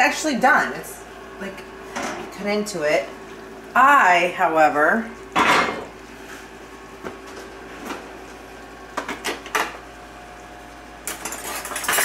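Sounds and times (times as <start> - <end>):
kitchen utensils clattering: 11.1 - 12.0.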